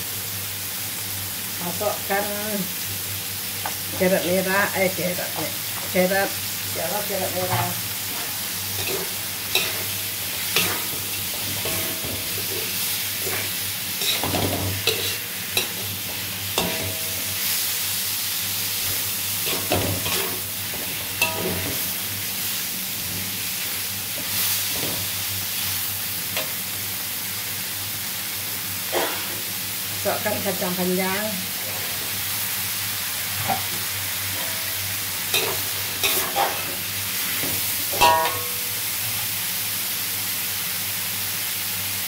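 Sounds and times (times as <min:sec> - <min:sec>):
food sizzling in a wok: 0:00.0 - 0:42.0
metal spatula scraping a pan: 0:07.5 - 0:17.4, 0:19.5 - 0:21.9, 0:34.3 - 0:36.8, 0:37.9 - 0:38.6.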